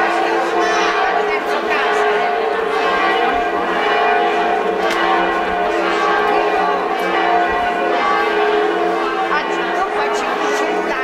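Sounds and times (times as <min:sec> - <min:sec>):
church bells ringing: 0:00.0 - 0:11.0.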